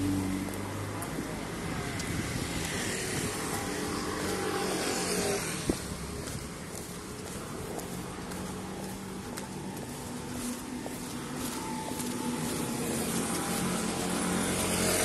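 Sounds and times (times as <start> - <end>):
vehicle engine running: 5.5 - 15.0.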